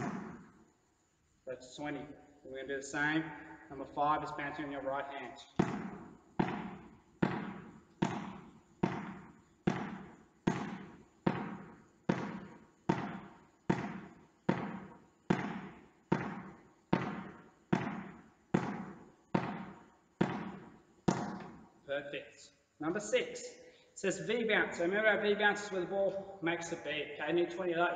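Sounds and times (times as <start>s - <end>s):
ball bouncing on hall floor: 0.0s - 0.6s, 5.4s - 21.9s.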